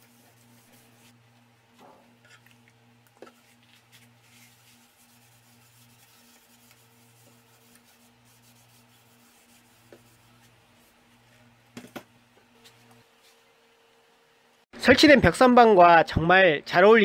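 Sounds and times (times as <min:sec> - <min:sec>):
hand rubbing wood: 0:00.0 - 0:01.4, 0:03.2 - 0:11.6.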